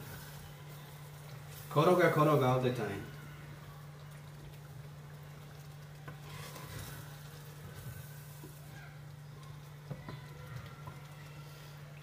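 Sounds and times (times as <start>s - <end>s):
sauce sizzling: 0.0s - 11.9s
wooden spoon stirring sauce: 3.1s - 12.0s.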